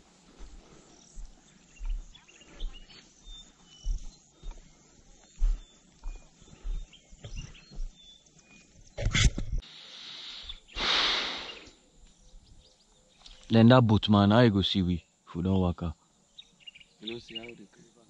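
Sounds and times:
footsteps on dry ground: 0.0s - 9.6s
faint high chirps: 0.8s - 9.0s.

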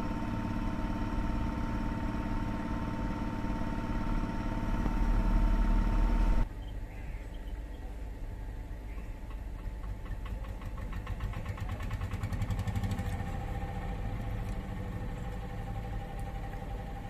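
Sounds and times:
machine engine running: 0.0s - 6.5s, 9.5s - 17.0s
steady whine: 0.0s - 6.5s.

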